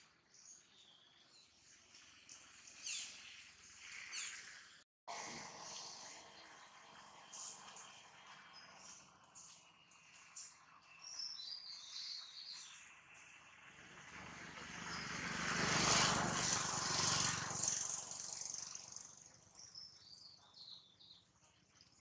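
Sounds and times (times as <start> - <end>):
small birds chirping: 0.3 - 4.8, 5.7 - 13.6, 17.6 - 22.0
aircraft passing overhead: 1.3 - 20.3.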